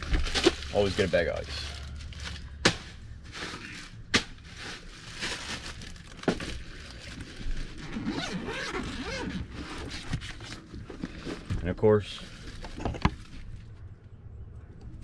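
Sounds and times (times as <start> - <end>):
plastic bags crinkling: 0.0 - 2.6, 3.2 - 9.2
cooler being handled and opened: 0.0 - 13.8.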